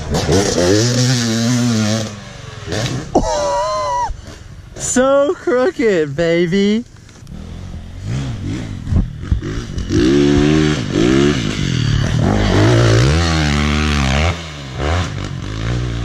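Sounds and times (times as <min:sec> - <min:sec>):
two-stroke dirt bike engine revving: 0:00.0 - 0:03.2, 0:07.3 - 0:16.0.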